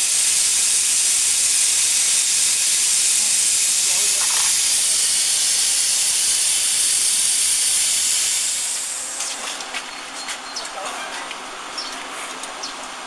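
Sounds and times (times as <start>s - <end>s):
plasma torch hissing: 0.0s - 9.7s.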